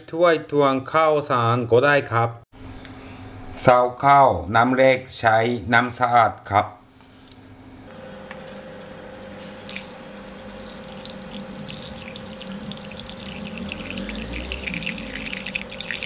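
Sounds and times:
water pouring into metal bowl: 0:08.5 - 0:16.0.

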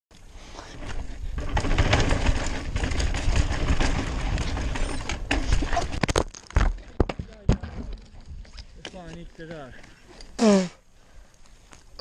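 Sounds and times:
mountain bike rattling on rough trail: 0:00.1 - 0:10.4.

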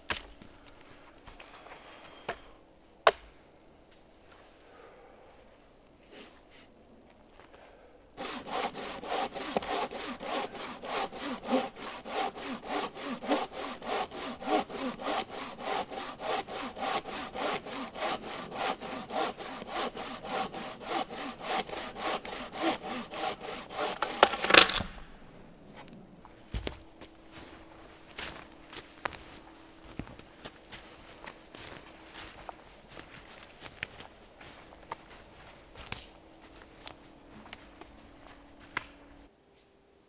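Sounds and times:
hand saw cutting log: 0:08.2 - 0:24.9.

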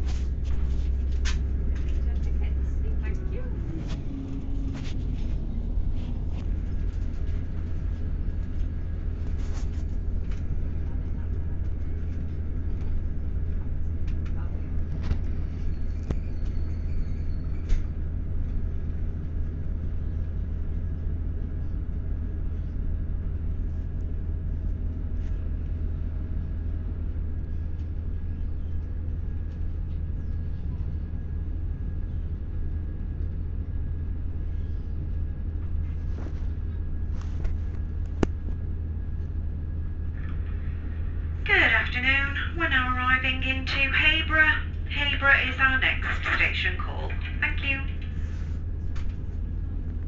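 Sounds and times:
faint steady whine: 0:00.0 - 0:50.0
train carriage low rumble: 0:00.0 - 0:50.0.

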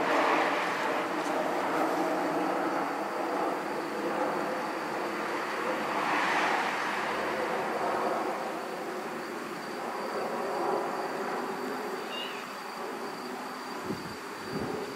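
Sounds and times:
outdoor background noise: 0:00.0 - 0:14.9
faint cat meow: 0:12.0 - 0:12.5.

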